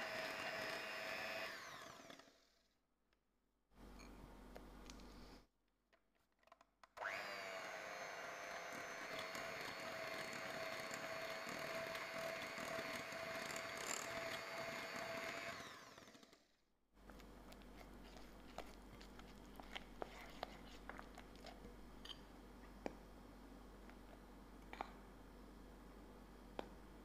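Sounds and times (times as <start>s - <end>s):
electric hand mixer whirring: 0.0s - 2.4s, 7.0s - 16.4s.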